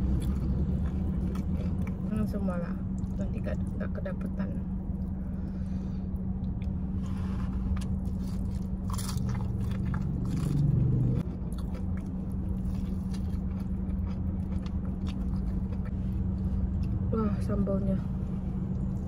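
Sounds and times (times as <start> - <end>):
fried chicken being chewed: 0.0 - 2.1, 6.4 - 17.0
steady low hum: 0.0 - 19.0.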